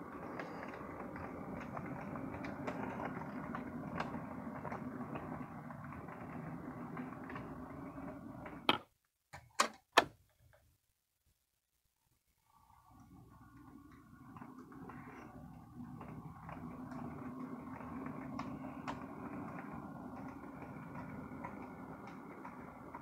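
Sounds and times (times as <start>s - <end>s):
model train running on track: 0.0s - 8.6s, 13.4s - 23.0s.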